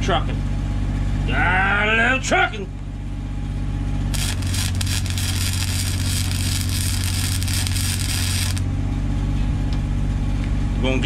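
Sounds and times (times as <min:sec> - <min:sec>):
engine running: 0:02.8 - 0:10.9
arc welding crackling buzz: 0:04.1 - 0:08.7.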